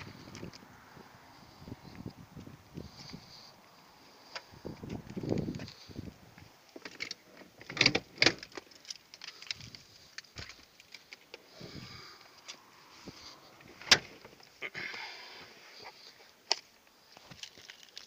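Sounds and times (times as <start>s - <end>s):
small clicks and handling knocks: 6.7s - 11.4s.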